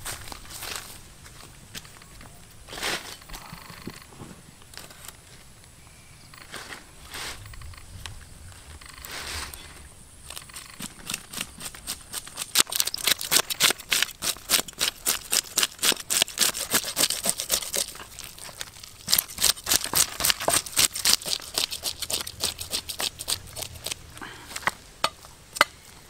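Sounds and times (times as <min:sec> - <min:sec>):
knife scraping fish scales: 0:10.6 - 0:24.0.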